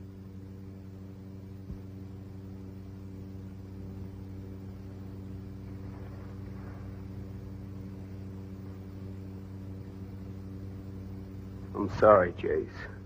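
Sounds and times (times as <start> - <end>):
low electrical hum with hiss: 0.0 - 13.0.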